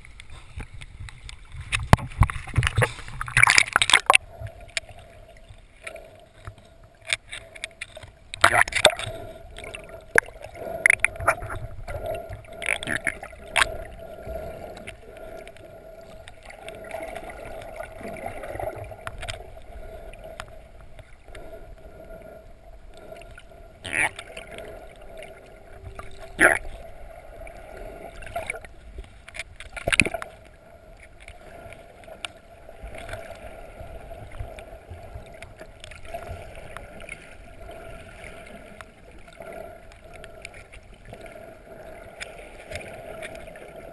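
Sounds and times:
underwater hum and rumble: 0.0s - 43.9s.

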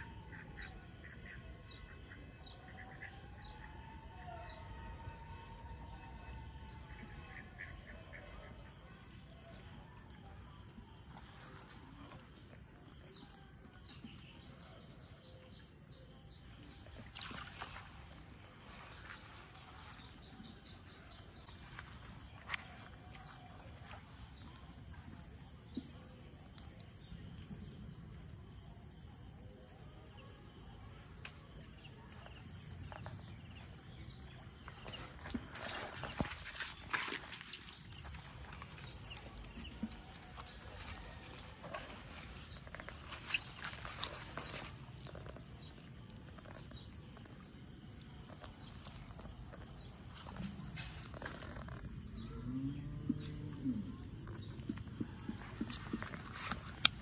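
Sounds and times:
insects chirping: 16.0s - 57.0s
bird calls: 32.1s - 47.3s.

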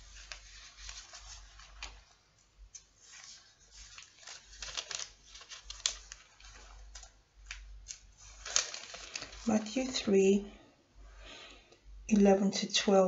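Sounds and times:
hands rustling and clicking: 0.0s - 10.0s.

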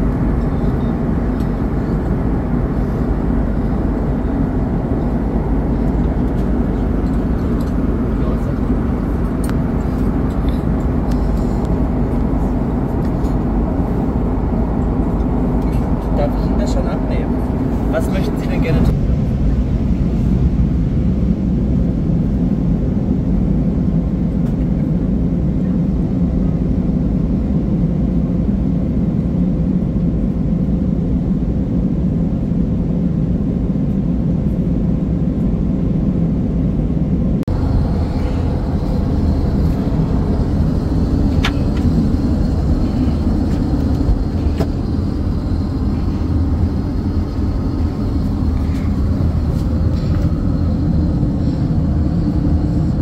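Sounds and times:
faint high whine: 0.0s - 12.6s
airplane cabin noise: 0.0s - 53.0s.

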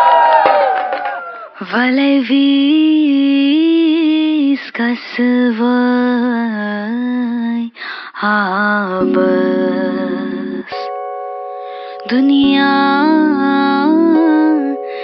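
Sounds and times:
person singing long notes: 8.9s - 10.9s, 11.6s - 15.0s.

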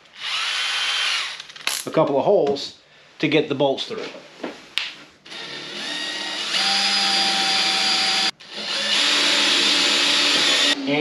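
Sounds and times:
cordless drill motor whining: 0.2s - 1.4s, 5.3s - 10.8s.

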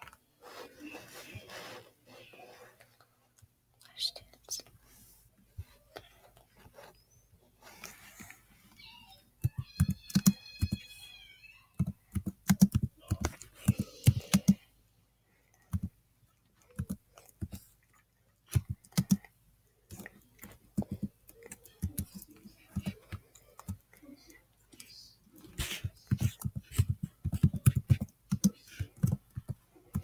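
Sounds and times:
computer keyboard typing: 9.4s - 10.8s, 11.7s - 14.6s, 15.7s - 15.9s, 16.7s - 17.6s, 18.5s - 19.3s, 19.9s - 23.8s, 26.0s - 30.0s.

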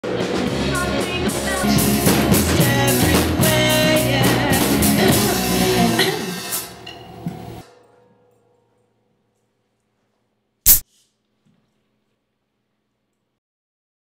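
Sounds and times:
drums: 0.0s - 7.6s
guitar: 0.0s - 8.8s
woman singing: 0.5s - 6.3s.

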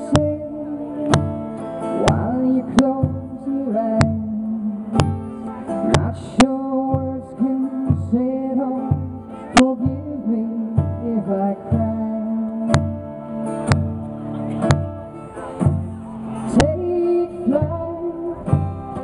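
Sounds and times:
strummed acoustic guitar: 0.0s - 19.0s
woman singing into microphone: 16.6s - 18.6s.

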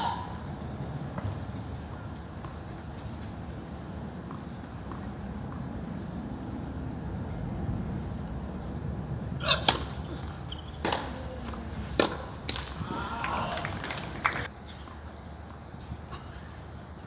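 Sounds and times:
racquets striking tennis ball: 9.4s - 14.5s.

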